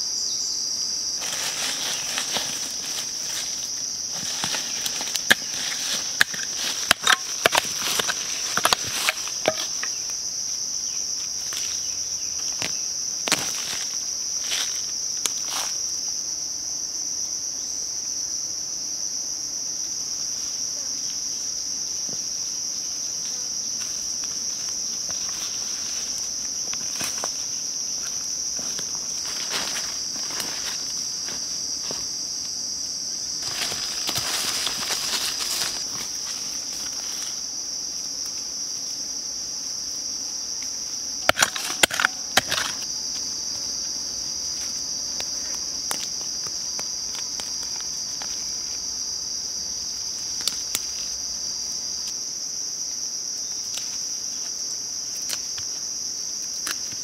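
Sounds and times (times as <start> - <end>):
insect chorus drone: 0.0 - 57.0
rustling through leafy undergrowth: 1.0 - 9.7, 23.6 - 37.8.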